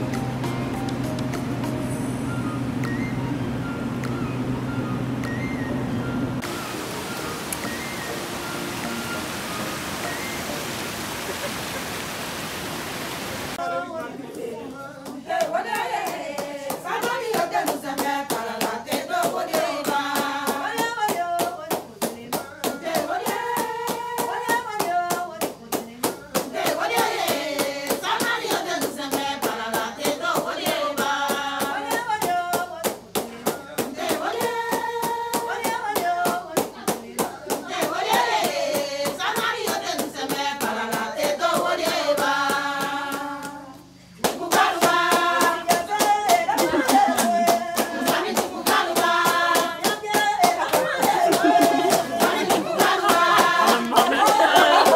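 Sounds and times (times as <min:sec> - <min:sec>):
hands clapping a steady beat: 0:00.0 - 0:01.8, 0:02.8 - 0:03.0, 0:04.0 - 0:04.2, 0:15.0 - 0:54.9
women singing together: 0:13.6 - 0:54.9
quick hand clapping: 0:44.2 - 0:54.9.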